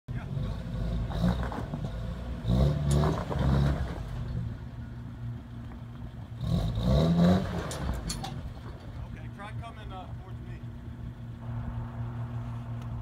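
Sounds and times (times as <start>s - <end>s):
engine revving under load: 0.1s - 4.6s, 6.2s - 8.7s.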